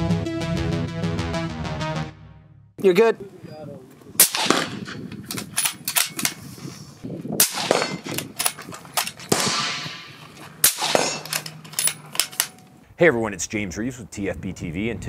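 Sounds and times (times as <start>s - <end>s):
suppressed rifle shots: 4.2s - 6.3s, 7.4s - 12.6s
rifle bolt clicks and knocks: 5.1s - 6.4s, 7.7s - 9.4s, 10.2s - 12.8s.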